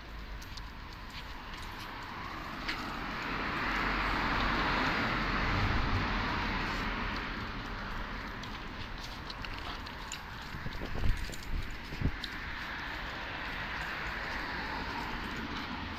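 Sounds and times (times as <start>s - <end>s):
car passing by: 1.5s - 9.4s, 11.8s - 15.9s.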